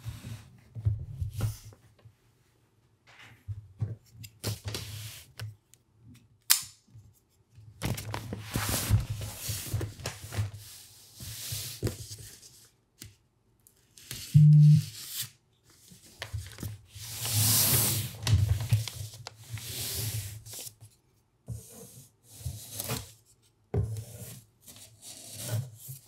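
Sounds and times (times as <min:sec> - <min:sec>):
paper rustling and crinkling: 0:07.8 - 0:10.6, 0:15.7 - 0:21.0.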